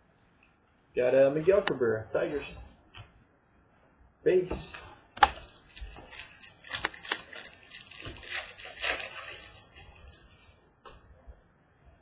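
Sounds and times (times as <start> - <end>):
cards rustling and snapping: 5.2 - 10.4.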